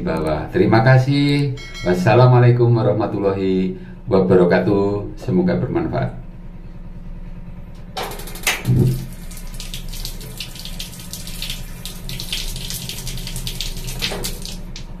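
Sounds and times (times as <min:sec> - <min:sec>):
low steady hum: 0:00.0 - 0:15.0
water running from tap: 0:08.1 - 0:15.0.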